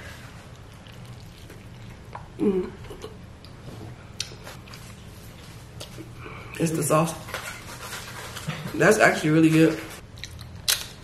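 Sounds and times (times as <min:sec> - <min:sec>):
person humming: 0:02.4 - 0:03.1.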